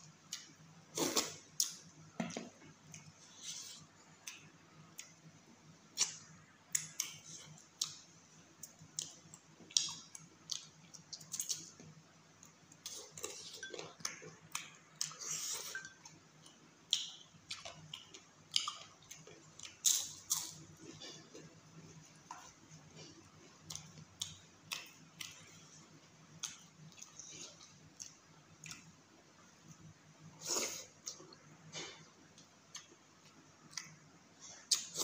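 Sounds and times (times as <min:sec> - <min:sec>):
faint low hum: 0:00.0 - 0:35.0
wet chewing and lip smacking: 0:08.6 - 0:21.5, 0:22.1 - 0:25.7.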